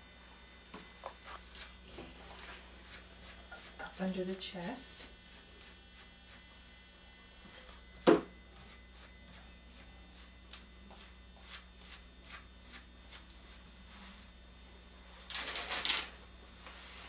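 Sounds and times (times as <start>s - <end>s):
brush strokes through fur: 1.2s - 4.1s, 8.6s - 14.2s.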